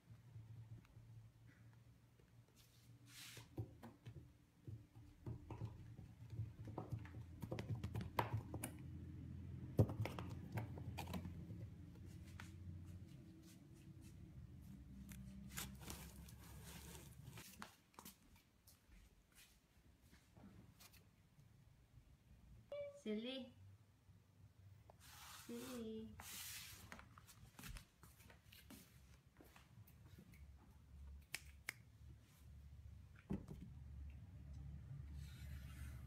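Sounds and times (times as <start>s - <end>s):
cardboard box scraping on wooden floor: 15.5s - 17.5s.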